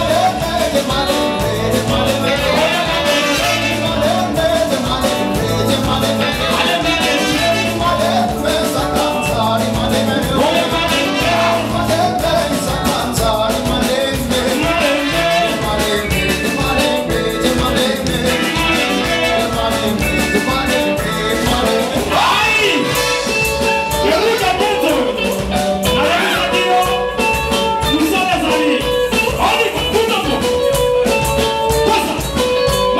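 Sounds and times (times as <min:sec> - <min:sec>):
driving bass: 0:00.0 - 0:32.9
live band playing dance music: 0:00.0 - 0:32.9
person singing: 0:00.0 - 0:32.9
trumpet: 0:01.5 - 0:04.6, 0:05.6 - 0:08.5, 0:10.3 - 0:12.4, 0:14.6 - 0:27.4.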